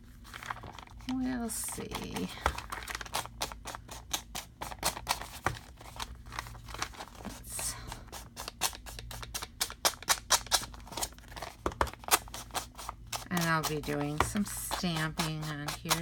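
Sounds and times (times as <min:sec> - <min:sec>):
foam pad scrubbing ink on paper: 0:12.5 - 0:16.0.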